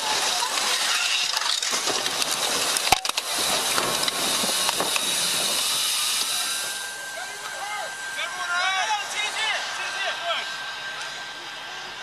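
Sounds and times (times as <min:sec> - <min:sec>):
debris crunching and crackling: 0:00.0 - 0:05.7
loud steady hiss: 0:00.0 - 0:12.0.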